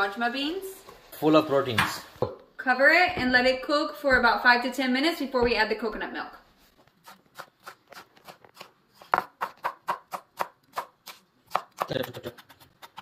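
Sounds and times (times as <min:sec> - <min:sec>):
knife chopping on wooden board: 0:07.0 - 0:13.0.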